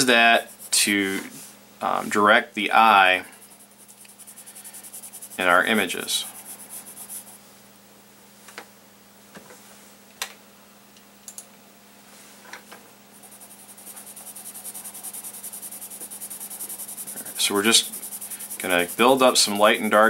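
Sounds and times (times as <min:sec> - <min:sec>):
faint steady hum: 0:00.0 - 0:20.0
pencil scratching on paper: 0:00.3 - 0:00.9, 0:03.0 - 0:07.4, 0:13.2 - 0:20.0.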